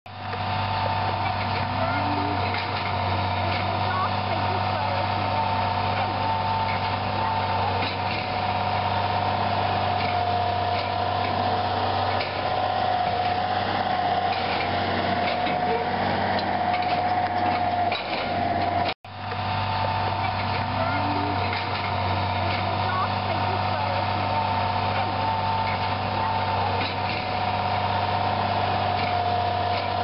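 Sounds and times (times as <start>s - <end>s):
machinery whine: 0.1s - 30.0s
tractor engine running: 0.1s - 30.0s
machinery knocks and clatter: 9.4s - 19.0s, 24.9s - 27.5s.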